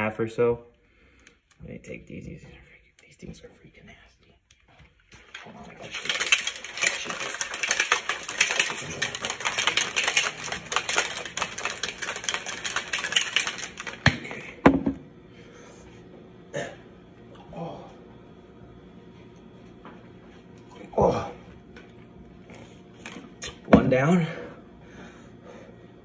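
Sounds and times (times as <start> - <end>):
plastic shaker bottle rattling: 5.2 - 14.8.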